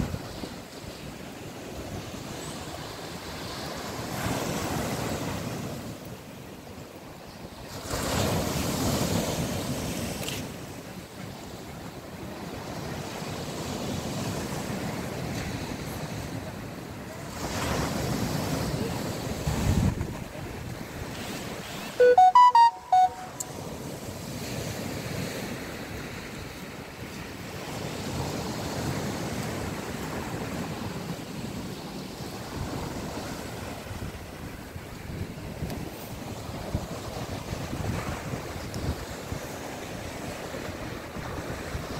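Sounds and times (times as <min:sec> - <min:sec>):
wind on microphone: 0:00.0 - 0:01.0, 0:17.3 - 0:22.0, 0:27.6 - 0:41.9
small waves washing on shore: 0:00.0 - 0:41.9
brief stepped pitched notes: 0:22.0 - 0:23.4.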